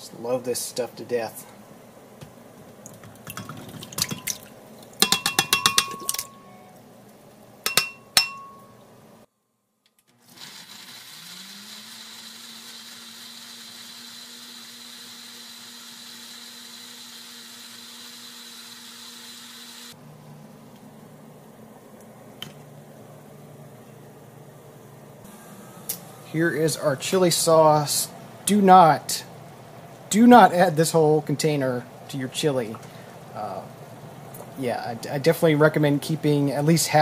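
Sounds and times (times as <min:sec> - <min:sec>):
blender motor running: 0:10.1 - 0:20.0.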